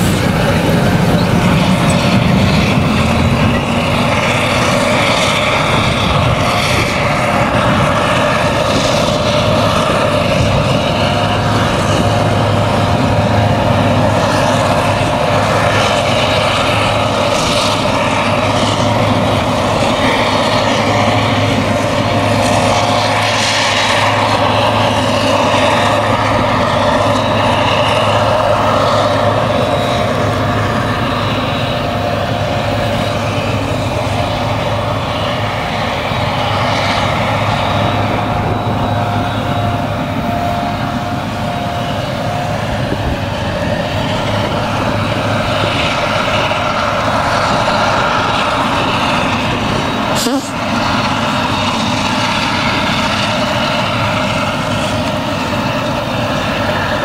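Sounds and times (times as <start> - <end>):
forage harvester engine drone: 0.0 - 57.0
tractor hauling trailer: 0.0 - 57.0.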